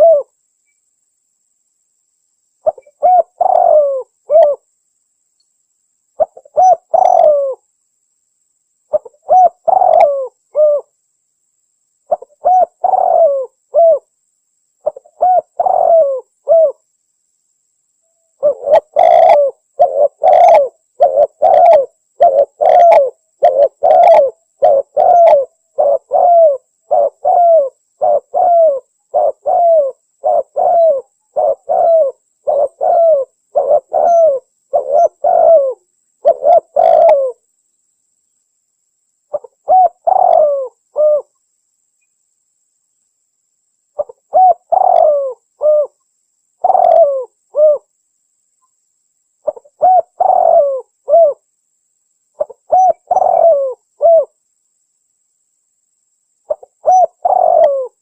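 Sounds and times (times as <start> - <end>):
dove cooing: 0.0 - 0.3, 2.6 - 4.6, 6.2 - 7.6, 8.9 - 10.9, 12.1 - 14.1, 14.8 - 16.8, 18.4 - 37.4, 39.3 - 41.3, 44.0 - 46.0, 46.6 - 47.9, 49.4 - 51.4, 52.4 - 54.4, 56.5 - 58.0.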